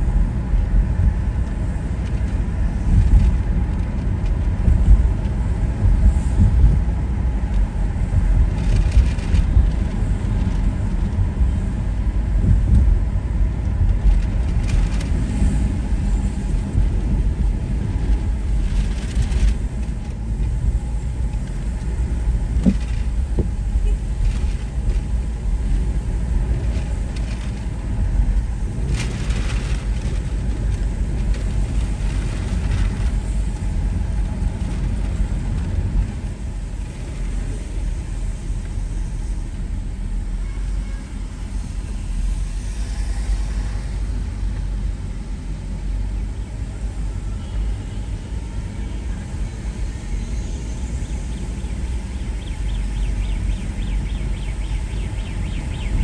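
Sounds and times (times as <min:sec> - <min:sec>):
car on wet road rumbling: 0:00.0 - 0:56.0.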